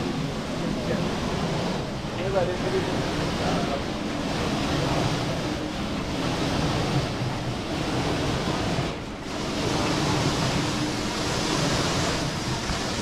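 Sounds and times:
crushing machine running: 4.4 - 13.0.

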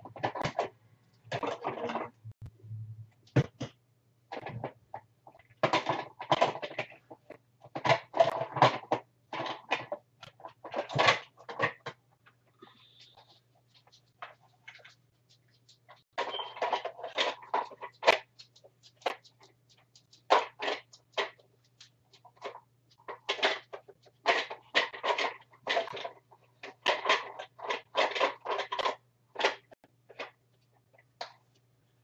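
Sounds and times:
plastic parts rustling and knocking: 0.0 - 2.5, 3.1 - 31.7
plastic parts clicking: 22.2 - 30.4.

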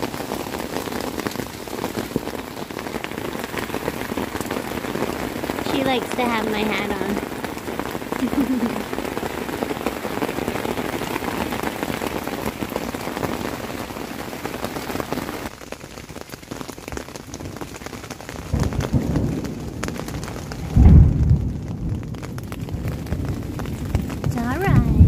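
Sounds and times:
rain falling on a tent: 0.0 - 25.0
low rumble of thunder: 18.4 - 25.0.

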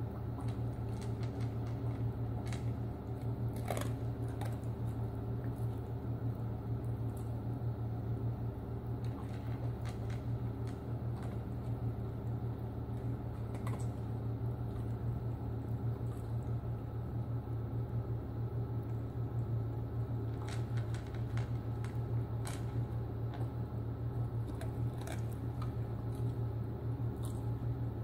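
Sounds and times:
steady low hum: 0.0 - 28.0
dog crunching dry kibble: 0.3 - 7.4, 9.0 - 16.5, 20.2 - 26.5, 27.1 - 27.7.

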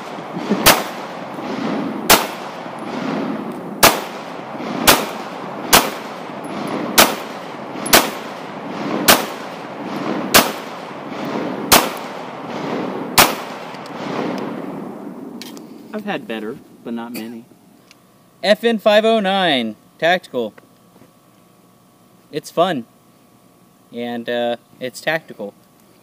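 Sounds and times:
pistol shots: 0.0 - 14.8.

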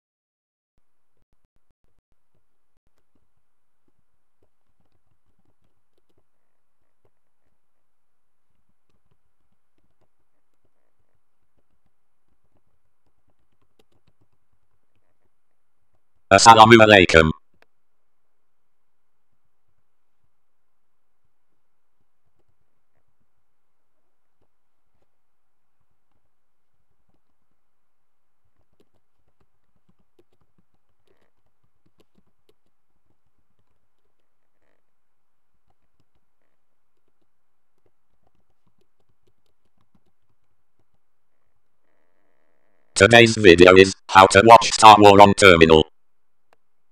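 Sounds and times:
faint keyboard typing: 2.2 - 18.2, 22.0 - 45.1
typing on computer keyboard: 3.9 - 6.3, 11.5 - 15.0, 28.6 - 34.3, 35.6 - 36.3, 36.9 - 41.1.

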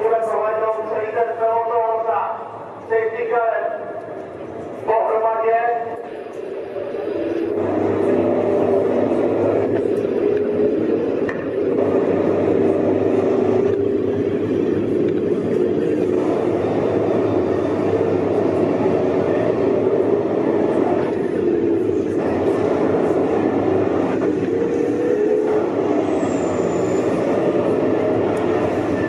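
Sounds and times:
race car engines roaring past: 5.9 - 29.0.

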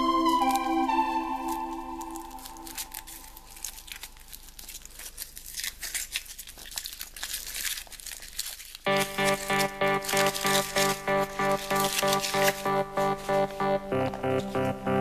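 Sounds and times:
rhythmic music: 0.0 - 2.9, 8.9 - 15.0
foil wrapper crinkling and tearing: 0.0 - 14.8.

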